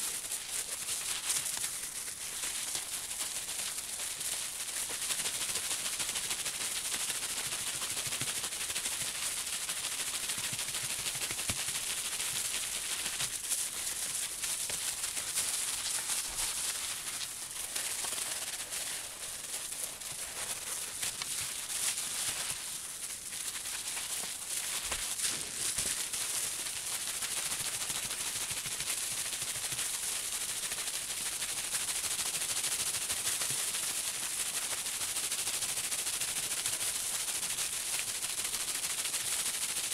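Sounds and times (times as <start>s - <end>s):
wet rubbing on bubble wrap: 0.0s - 29.8s.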